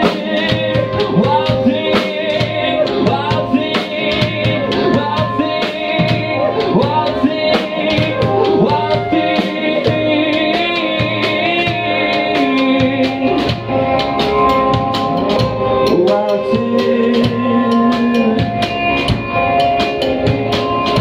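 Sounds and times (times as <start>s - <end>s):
man singing into a microphone: 0.0s - 13.6s, 15.8s - 18.9s
drum kit steady beat: 0.0s - 21.0s
electric guitar: 0.0s - 21.0s.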